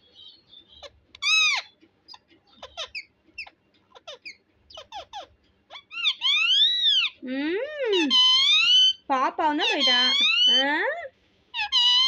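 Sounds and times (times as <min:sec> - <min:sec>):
parakeet chirping: 0:00.0 - 0:07.2, 0:07.9 - 0:10.8, 0:11.5 - 0:12.0
parakeet drawn-out call: 0:00.8 - 0:01.7, 0:02.6 - 0:07.2, 0:07.9 - 0:09.0, 0:09.6 - 0:10.6, 0:11.5 - 0:12.0.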